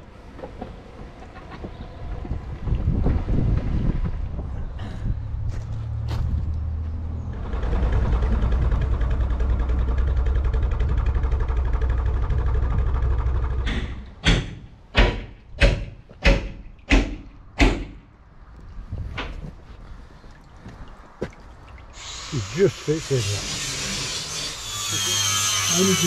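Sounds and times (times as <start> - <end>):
diesel engine running: 4.3 - 14.4.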